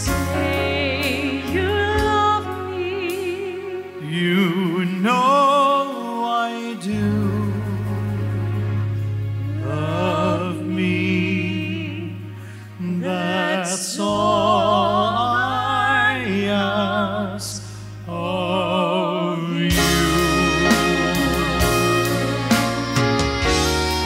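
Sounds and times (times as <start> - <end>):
live band playing: 0.0 - 4.9, 19.6 - 24.0
man and woman singing duet: 0.0 - 8.1, 9.4 - 23.0
held bass note: 19.6 - 24.0.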